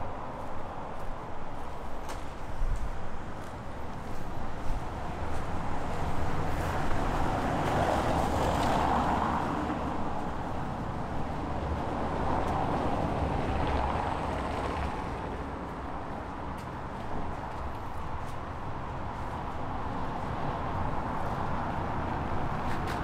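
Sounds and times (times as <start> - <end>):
cars passing: 0.0 - 23.0.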